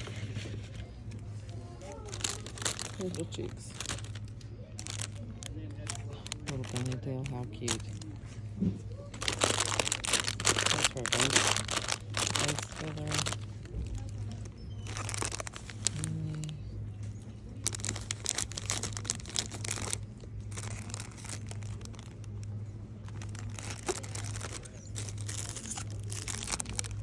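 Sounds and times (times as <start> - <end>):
plastic packaging crinkling: 0.0 - 27.0.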